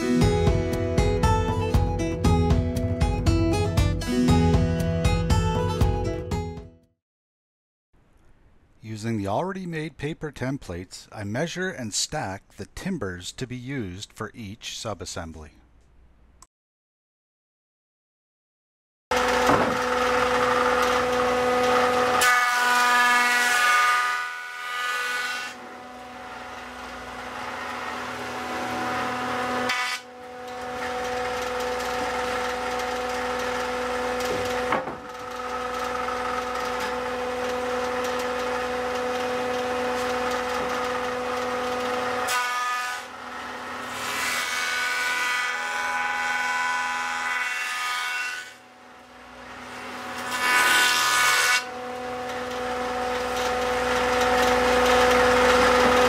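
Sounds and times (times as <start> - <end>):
jointer motor humming: 19.1 - 22.4, 25.6 - 42.3, 51.7 - 56.0
wood being planed: 19.1 - 48.6, 49.4 - 56.0.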